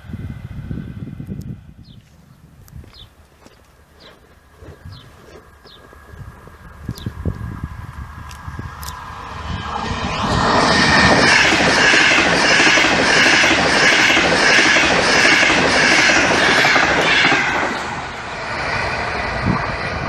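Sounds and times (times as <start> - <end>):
express train passing: 5.9 - 20.0.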